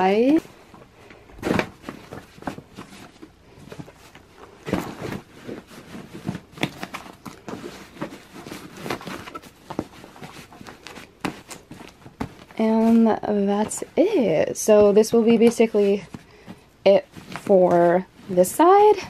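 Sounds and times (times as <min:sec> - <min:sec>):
fabric rustling: 0:00.0 - 0:19.0
cloth knocking against suitcase: 0:11.2 - 0:12.6.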